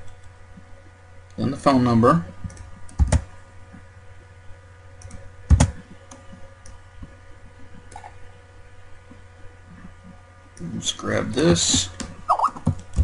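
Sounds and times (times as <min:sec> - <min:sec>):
steady electrical hum: 0:00.0 - 0:13.0
keyboard and mouse clicks: 0:02.4 - 0:03.3.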